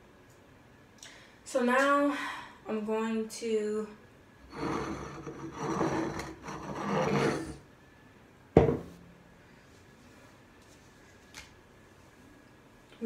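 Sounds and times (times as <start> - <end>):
rubbing and scraping of handled objects: 4.5 - 7.6.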